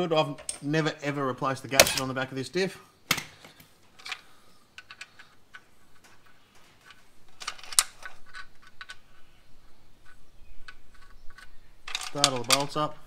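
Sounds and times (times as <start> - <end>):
metallic clicks of nuts handled: 3.8 - 9.2, 10.0 - 13.0
metallic clatter: 10.0 - 12.9.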